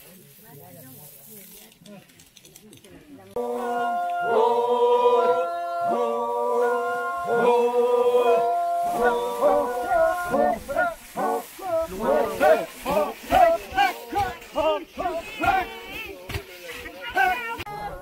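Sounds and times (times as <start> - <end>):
men singing in harmony: 3.4 - 15.8.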